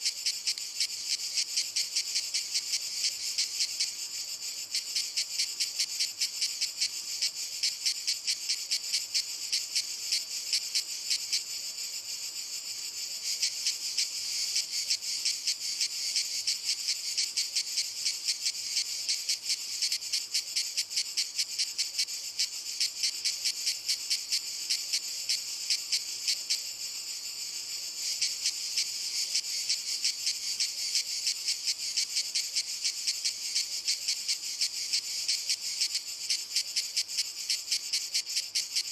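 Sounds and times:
cicadas singing: 0:00.0 - 0:38.9.

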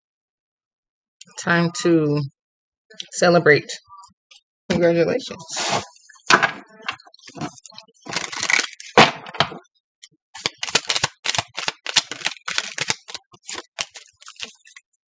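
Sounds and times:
cards rustling: 0:07.2 - 0:09.0, 0:10.4 - 0:14.9
cards snapping together: 0:10.4 - 0:14.5.

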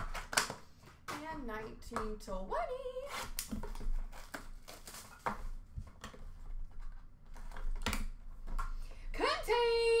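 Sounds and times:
cardboard and packaging rustling: 0:02.8 - 0:08.6.

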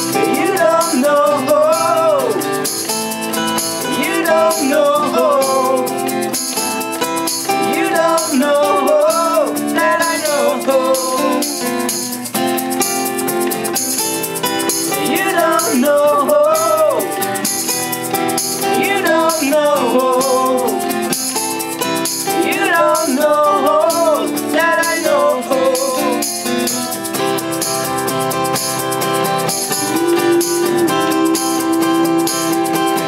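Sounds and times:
acoustic guitar chords: 0:00.0 - 0:33.0
shaker: 0:00.0 - 0:33.0
sliding wavering lead melody: 0:26.3 - 0:33.0.

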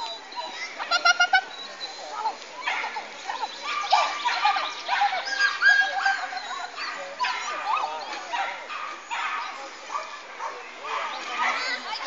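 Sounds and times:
dog barking: 0:02.6 - 0:11.7.

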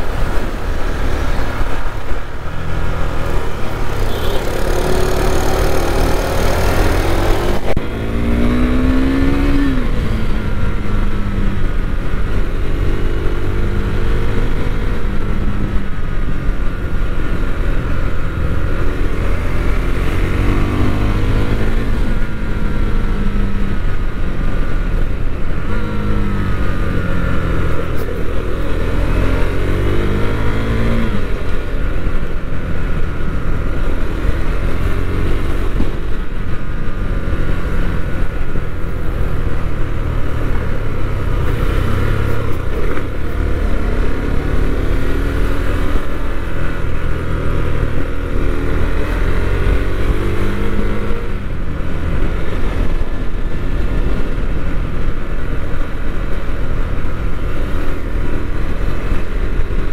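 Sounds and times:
motorcycle engine revving: 0:00.0 - 0:15.9, 0:25.6 - 0:55.8.

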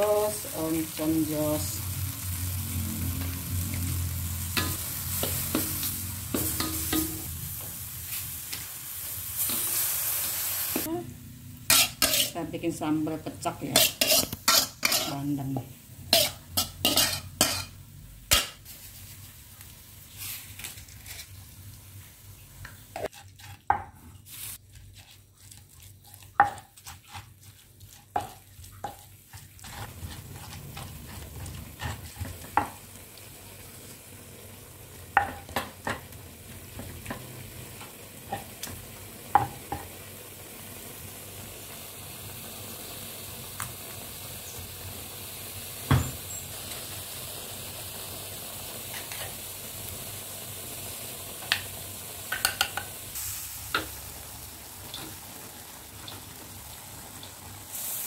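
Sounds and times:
steady hiss: 0:53.0 - 0:55.1, 0:57.6 - 0:58.0.

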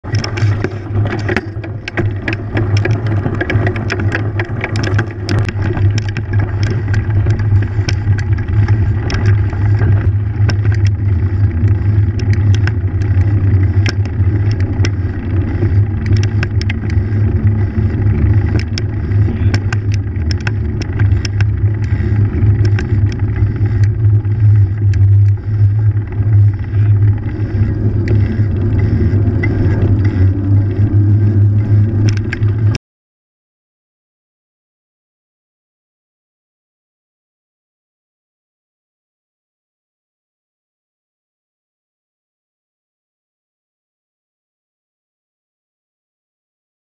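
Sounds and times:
bike clicking and rattling: 0:00.0 - 0:32.8
bike tyres rumbling: 0:00.0 - 0:32.8
wind: 0:00.0 - 0:32.8.

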